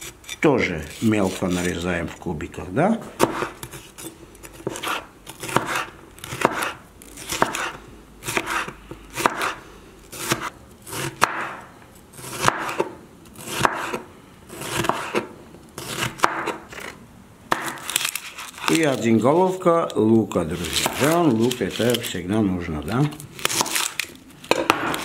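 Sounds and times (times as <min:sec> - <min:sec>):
knife cutting through pepper: 0:03.2 - 0:11.6, 0:12.2 - 0:19.0, 0:20.6 - 0:22.1, 0:23.4 - 0:24.1.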